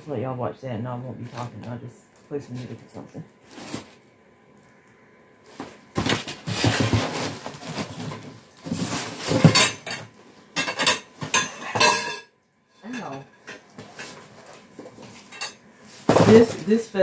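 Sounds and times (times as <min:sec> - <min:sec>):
cardboard packaging rustling: 0:02.2 - 0:04.0, 0:05.4 - 0:09.6
metal tubes clattering: 0:10.6 - 0:14.2.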